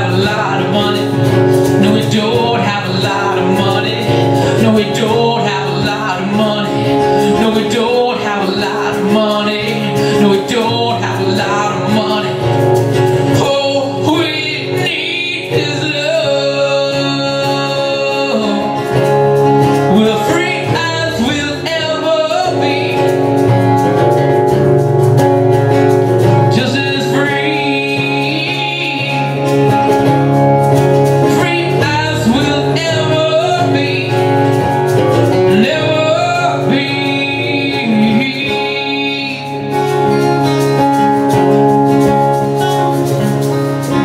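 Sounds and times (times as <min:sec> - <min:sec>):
man singing: 0:00.0 - 0:24.6, 0:26.1 - 0:44.0
acoustic guitars strummed: 0:00.0 - 0:44.0.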